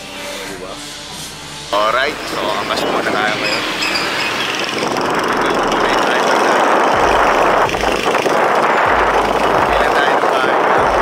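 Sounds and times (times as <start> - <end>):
street traffic noise: 0.0 - 11.0
short low rumbles: 3.6 - 11.0.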